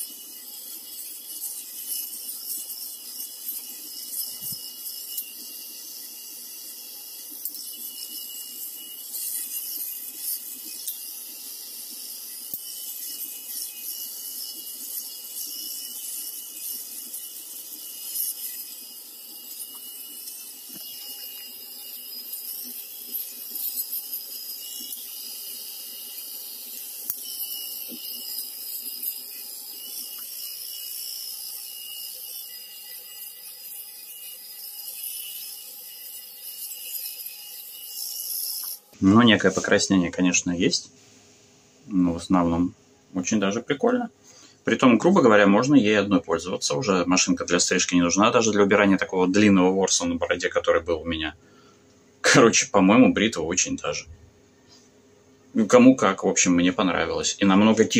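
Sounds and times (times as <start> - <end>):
electric shaver motor hum: 0.0 - 39.0
shaver cutting stubble crackle: 0.0 - 39.9.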